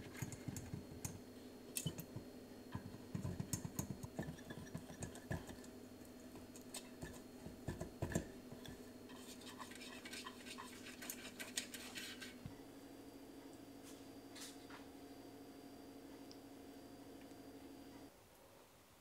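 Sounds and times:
scratchy brushing strokes: 9.1 - 12.4.

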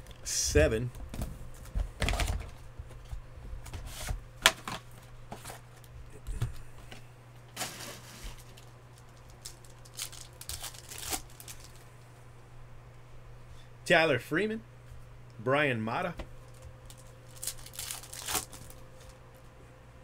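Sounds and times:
cards rustling: 7.6 - 11.9, 16.4 - 19.2
plastic wrap crinkling: 7.6 - 11.9, 16.4 - 19.2.

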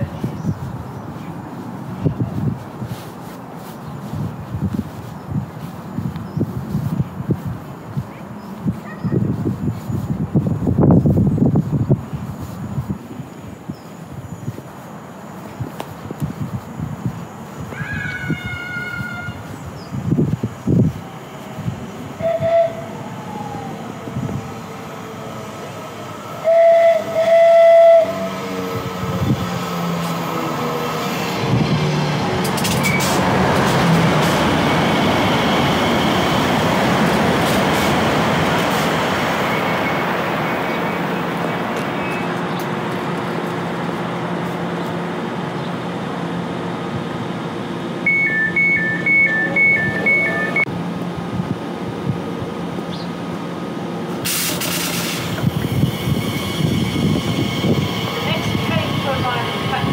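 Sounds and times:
train passing with rushing rail noise: 0.0 - 59.9
train horn blasts: 22.2 - 23.0, 26.4 - 28.9
two-tone electronic beeping: 48.1 - 50.7.

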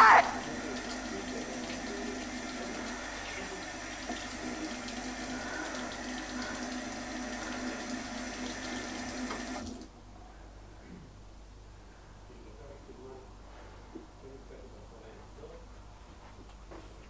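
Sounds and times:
water running: 0.0 - 9.9.

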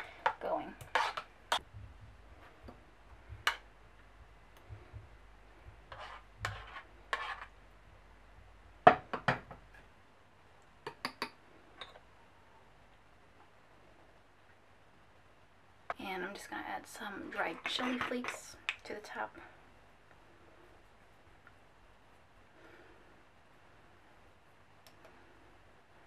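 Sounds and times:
metal spoon scraping saucepan: 0.8 - 1.6, 5.9 - 7.5.

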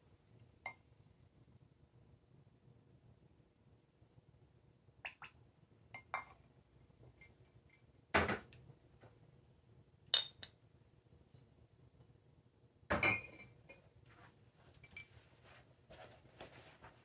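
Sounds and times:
glass clinking: 5.9 - 6.4, 10.1 - 10.6, 12.9 - 13.5.

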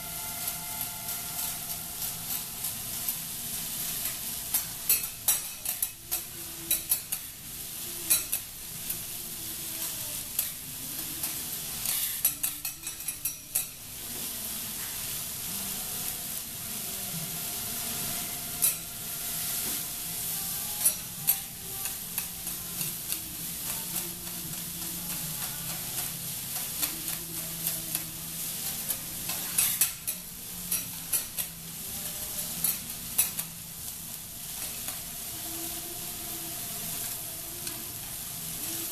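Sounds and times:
food sizzling on griddle: 0.0 - 38.9
metal spatulas scraping and tapping: 4.0 - 7.3, 8.1 - 9.1, 9.8 - 13.8, 18.2 - 19.9, 20.8 - 33.6.

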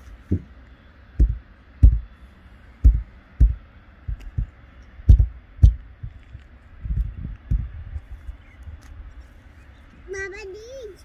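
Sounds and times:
heels thumping on car roof: 1.2 - 2.1, 2.8 - 4.5, 5.1 - 6.2.

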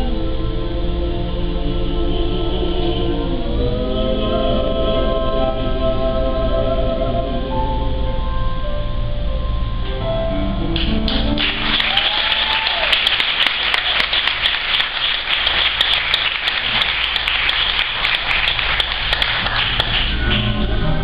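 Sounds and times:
audience applause: 10.8 - 20.7.

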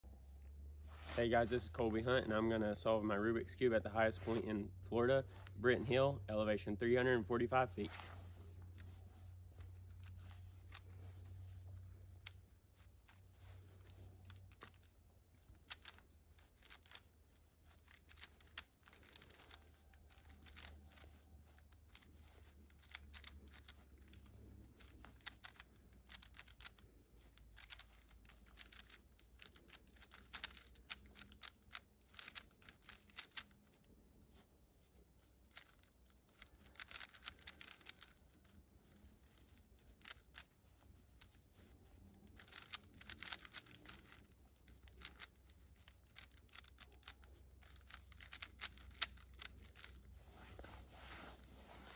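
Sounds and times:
puzzle cube plastic clicks: 8.6 - 33.8, 35.2 - 50.1.

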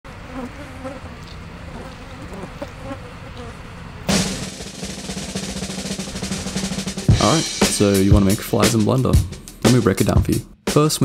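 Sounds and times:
flies buzzing: 0.1 - 8.0
loud drum hit: 4.1 - 10.4.

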